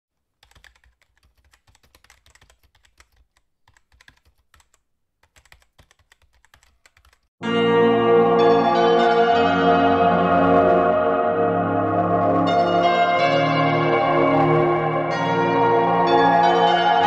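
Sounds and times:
computer keyboard typing: 0.2s - 7.3s
loud music with sustained tones: 7.4s - 17.0s.

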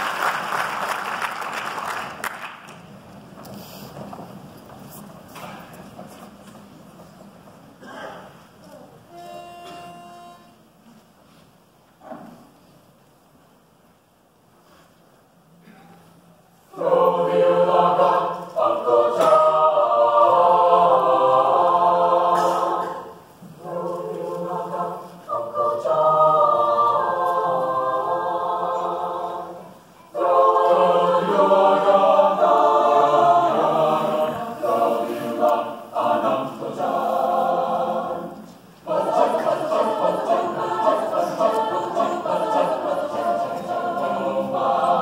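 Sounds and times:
choir singing: 16.7s - 45.0s.

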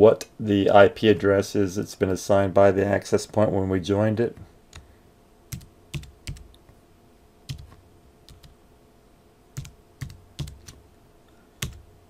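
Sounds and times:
keyboard key presses: 5.5s - 6.6s, 7.5s - 8.5s, 9.6s - 10.8s, 11.6s - 11.8s.

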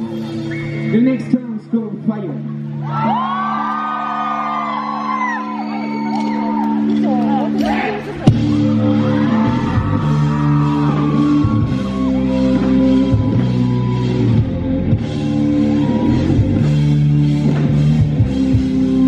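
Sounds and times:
bass guitar: 5.6s - 19.0s
drum kit: 7.6s - 19.0s.

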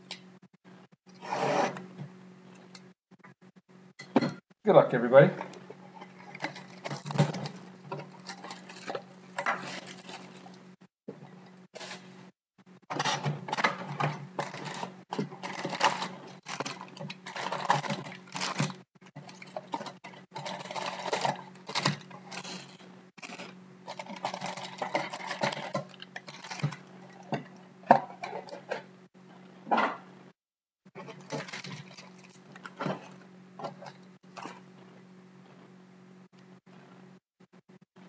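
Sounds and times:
foil packs rustling and crinkling: 6.2s - 10.6s, 11.8s - 12.1s, 12.9s - 27.3s, 31.0s - 34.6s.

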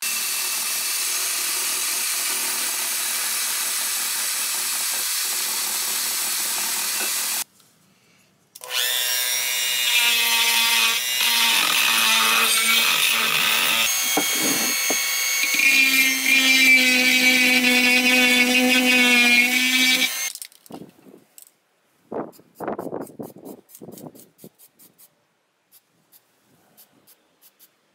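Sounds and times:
rotary tool whining on metal: 8.6s - 20.3s.

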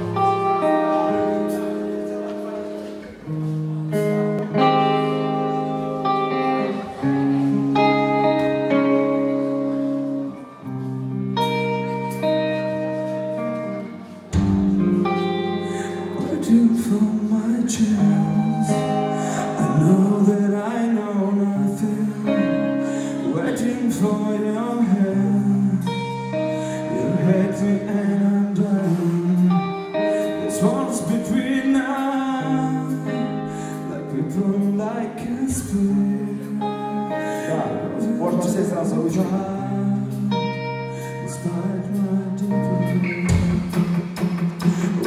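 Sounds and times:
electric guitar chords: 0.0s - 45.0s
live band music: 0.0s - 45.0s
man singing: 15.6s - 43.8s.

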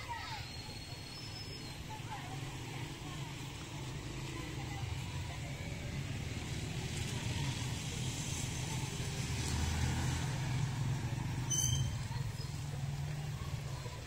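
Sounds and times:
short high chirp: 11.5s - 12.1s.

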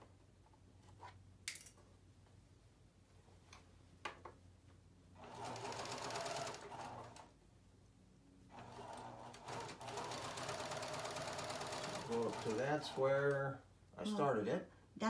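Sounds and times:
sewing machine stitching: 5.2s - 7.3s, 8.5s - 13.5s.

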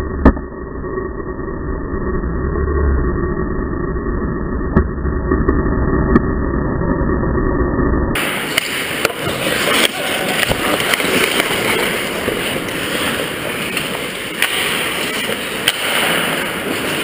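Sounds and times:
skate blades scraping ice: 8.2s - 17.0s
sticks and puck clacking: 8.2s - 17.0s.

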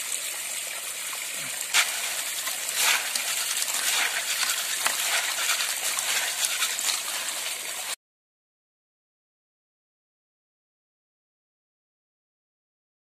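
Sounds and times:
water pouring onto ground: 0.0s - 8.0s
snail shells rattling in metal pan: 1.8s - 7.3s.

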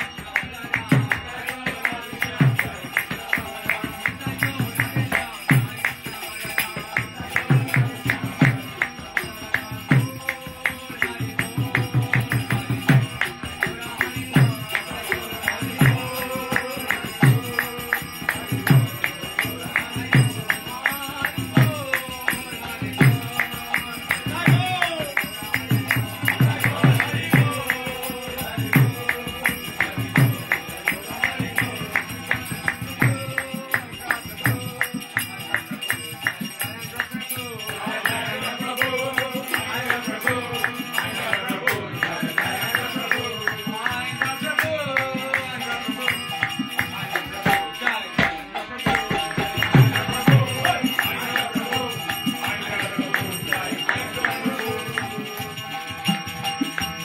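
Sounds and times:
voices chanting: 0.0s - 57.0s
hand drum: 37.6s - 57.0s.

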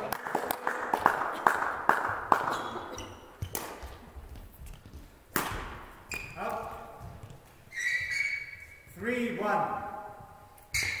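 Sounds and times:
sparse clapping: 0.0s - 2.5s.

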